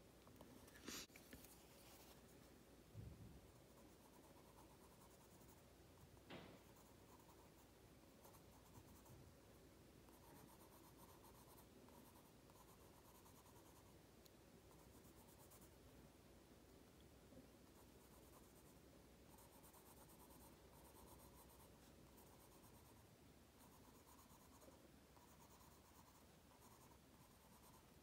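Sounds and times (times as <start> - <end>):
soft knock: 6.3 - 6.7
pencil scratching on card: 10.1 - 13.9, 19.3 - 22.9, 23.6 - 27.9.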